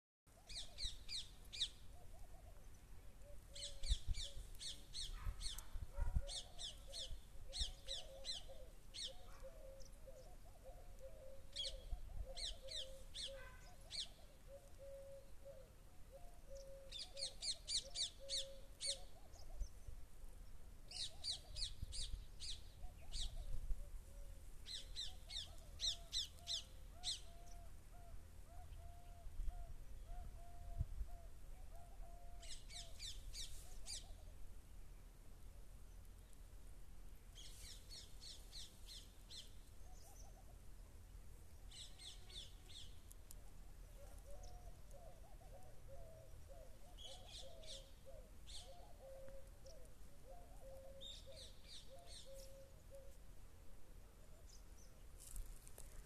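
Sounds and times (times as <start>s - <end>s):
low wavering bird call: 6.2s - 19.7s, 22.8s - 34.3s, 43.9s - 53.2s.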